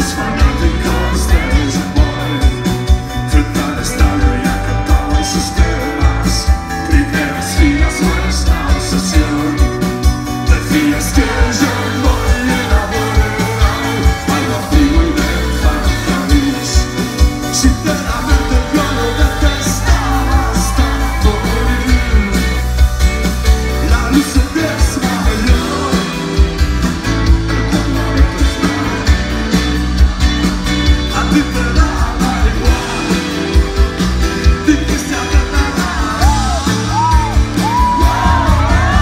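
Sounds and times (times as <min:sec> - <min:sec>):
male vocal singing: 0:00.0 - 0:22.7, 0:23.8 - 0:26.3, 0:27.6 - 0:29.3, 0:31.1 - 0:33.3, 0:34.6 - 0:39.0
bass guitar: 0:00.0 - 0:39.0
electric guitar: 0:00.0 - 0:39.0
steady drum beat: 0:00.0 - 0:39.0.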